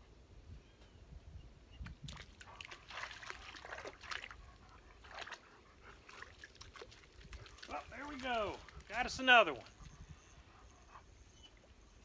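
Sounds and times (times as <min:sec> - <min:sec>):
dog splashing in water: 0:02.1 - 0:04.4, 0:05.0 - 0:09.7.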